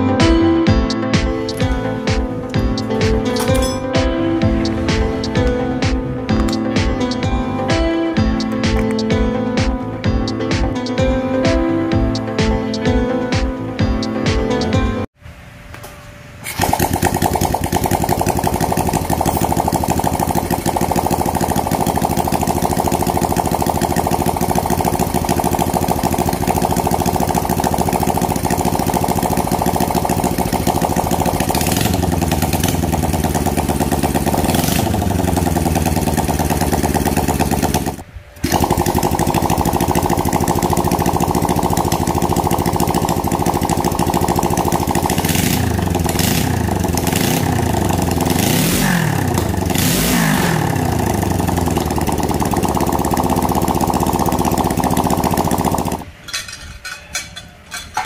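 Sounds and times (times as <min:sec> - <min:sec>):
engine revving: 0:16.5 - 0:56.0.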